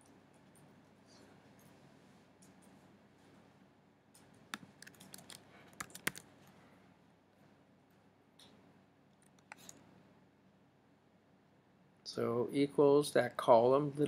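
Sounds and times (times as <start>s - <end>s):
computer keyboard typing: 4.5s - 6.3s.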